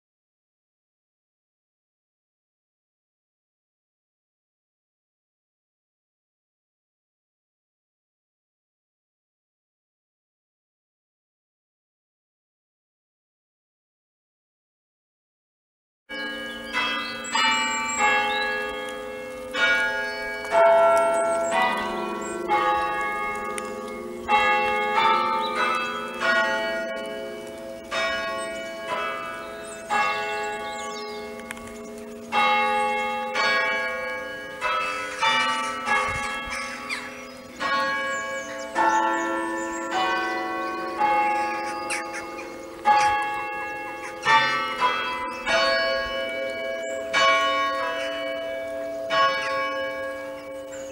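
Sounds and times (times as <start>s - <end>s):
church bells chiming: 16.1s - 50.9s.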